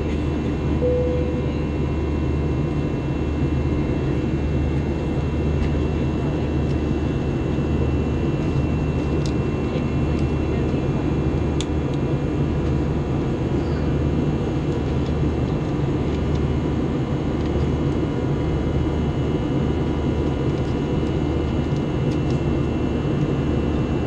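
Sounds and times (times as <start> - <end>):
aircraft engine and airflow noise: 0.0 - 24.0
faint steady high tones: 0.8 - 1.7.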